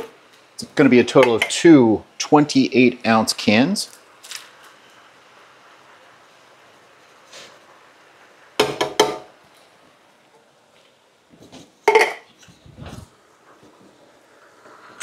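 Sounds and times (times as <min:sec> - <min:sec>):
tin can knocking on cooking pot: 0:08.6 - 0:09.3, 0:11.8 - 0:12.3.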